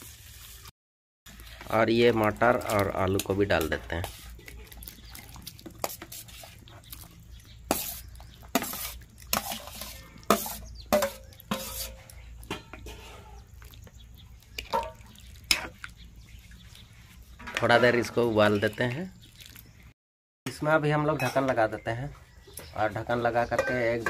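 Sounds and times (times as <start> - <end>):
steel spoon scraping and clinking: 7.7 - 13.4.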